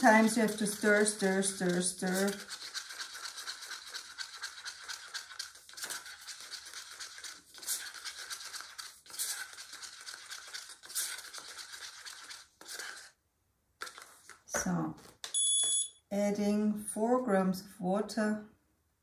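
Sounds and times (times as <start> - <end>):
stick scraping inside cup: 0.1 - 13.2, 13.8 - 14.4.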